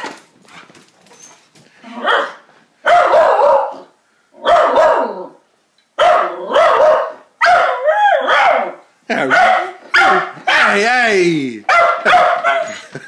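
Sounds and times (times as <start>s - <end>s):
dog barking excitedly: 2.0s - 5.3s, 6.0s - 10.9s, 11.6s - 12.9s.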